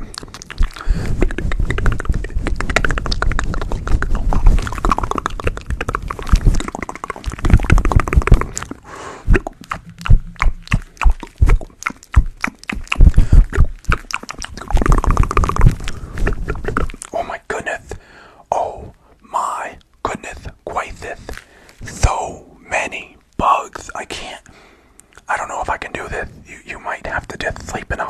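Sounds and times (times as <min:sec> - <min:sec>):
fingers scratching microphone windscreen: 0:00.0 - 0:17.0.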